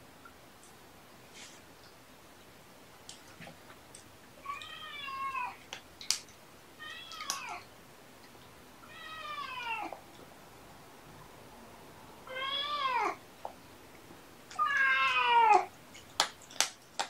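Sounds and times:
cat meowing: 4.4s - 5.6s, 6.8s - 7.6s, 8.9s - 10.0s, 12.3s - 13.2s, 14.5s - 15.7s.

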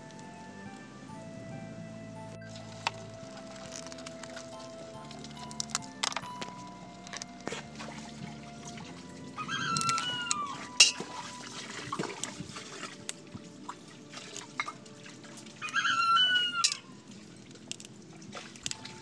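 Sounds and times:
crab shell cracking: 2.7s - 7.7s, 17.5s - 18.9s
animal calling: 7.1s - 11.3s, 15.6s - 16.9s.

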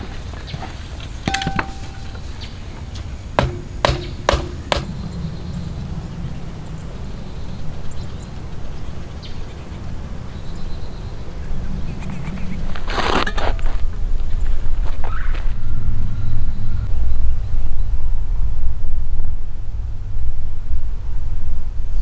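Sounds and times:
steel parts clanking: 1.3s - 2.3s
metallic knocks ringing: 1.3s - 2.4s, 3.4s - 5.0s.

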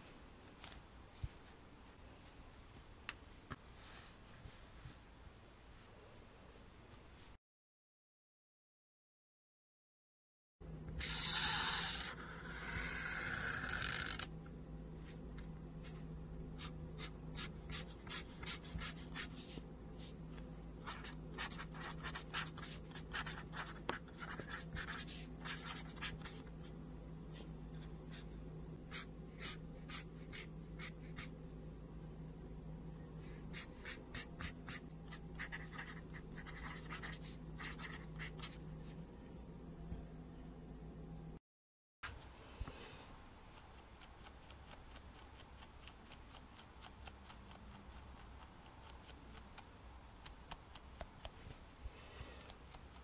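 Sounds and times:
faint steady hum: 10.6s - 41.4s, 42.0s - 53.0s
marker drawing on paper: 11.0s - 14.2s, 20.8s - 26.5s, 33.5s - 38.6s.

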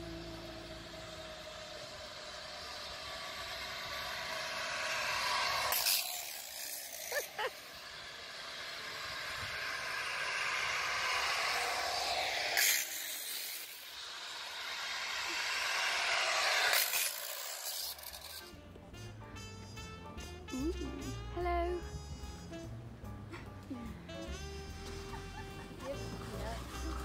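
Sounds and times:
pulleys hissing along cable: 0.0s - 18.6s, 25.4s - 27.0s
high squeaks: 15.0s - 18.6s.

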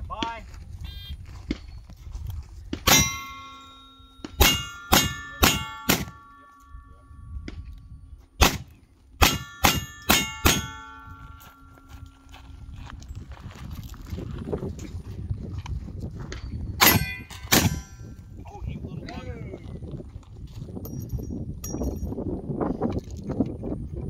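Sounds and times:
steel plate ringing: 2.9s - 7.5s, 9.2s - 12.2s, 16.8s - 18.2s.

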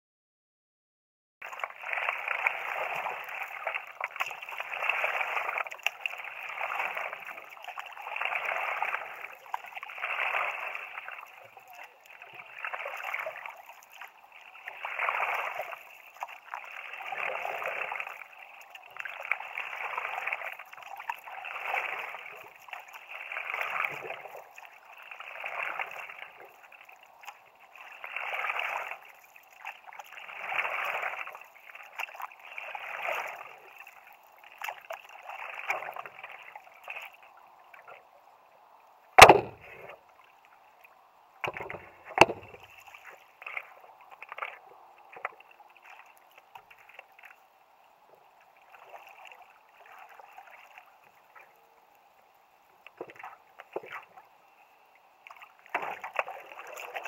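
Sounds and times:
dripping and lapping water: 1.4s - 38.0s, 39.2s - 52.0s, 55.0s - 57.0s
paddle strokes swishing through water: 1.4s - 38.2s, 39.2s - 57.0s
sharp knocks on board: 39.2s - 39.7s.

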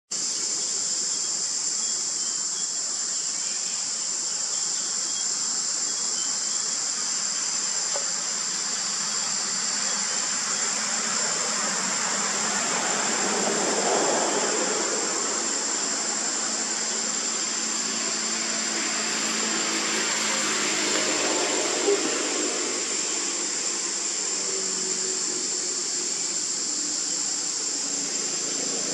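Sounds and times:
high-pitched insect chorus: 0.1s - 28.9s
rushing noise: 6.6s - 28.9s.

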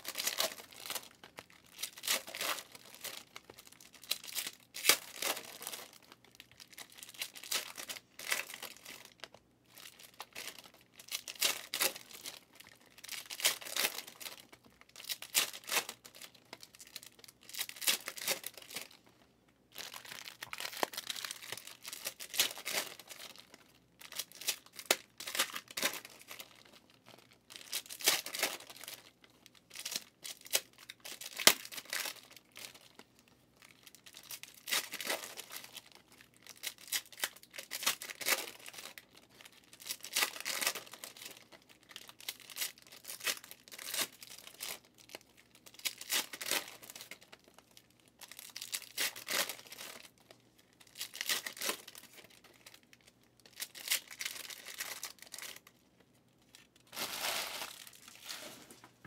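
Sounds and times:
trading cards rustling: 56.9s - 59.0s.

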